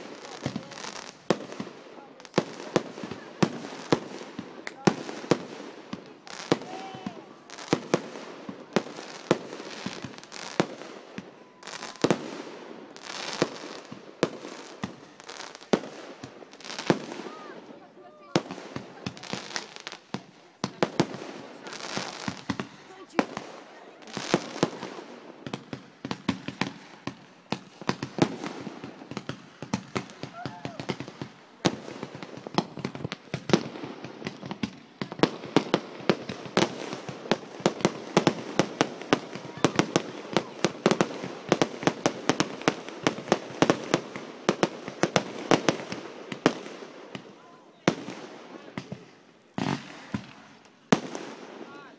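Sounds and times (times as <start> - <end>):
fireworks bangs: 0.0 - 51.9
fireworks hiss: 18.4 - 25.2.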